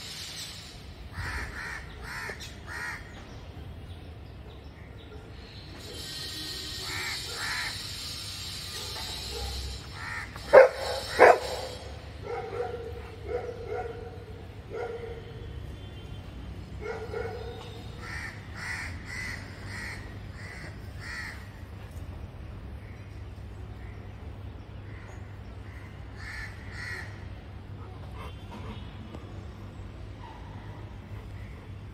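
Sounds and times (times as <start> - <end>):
crows cawing: 1.1 - 3.1, 6.7 - 8.1, 9.9 - 11.2, 18.0 - 21.6, 24.9 - 27.2
dog barking: 8.7 - 9.6, 10.4 - 15.4, 16.8 - 17.7.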